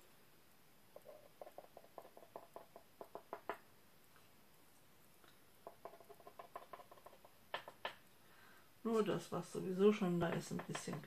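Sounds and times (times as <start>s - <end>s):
small tool tapping paint tray: 1.0s - 3.6s, 5.6s - 8.0s.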